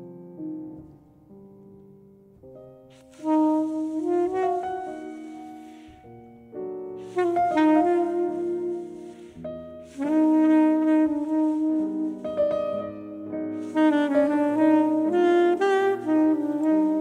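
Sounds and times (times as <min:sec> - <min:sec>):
piano chords: 0:00.0 - 0:17.0
soprano saxophone melody: 0:02.9 - 0:06.1, 0:07.0 - 0:17.0.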